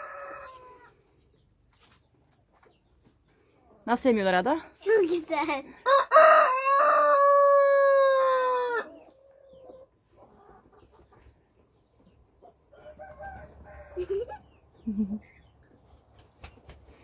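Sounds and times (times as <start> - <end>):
rooster crowing: 5.9 - 9.0, 12.8 - 14.2.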